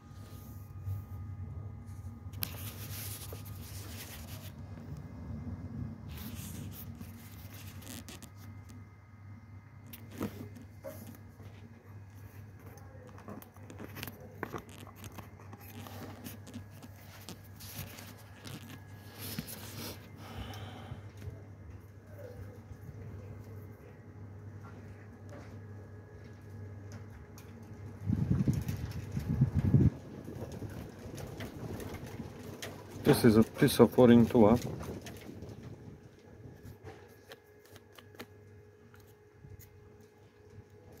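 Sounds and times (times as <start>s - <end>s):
steady low hum: 0.0s - 41.0s
scrapes and clicks of hand work: 36.6s - 40.2s.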